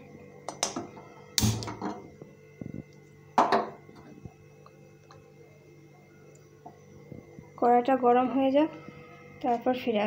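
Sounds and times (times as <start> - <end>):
gas burner igniting: 0.5 - 2.0.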